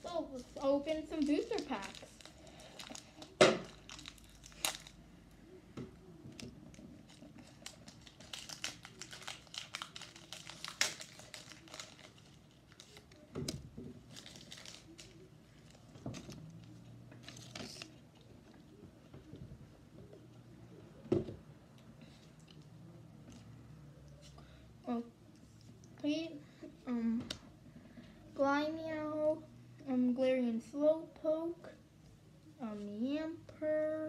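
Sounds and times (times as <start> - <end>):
foil wrappers tearing and crinkling: 0.4 - 5.0, 7.0 - 13.3, 14.0 - 16.4.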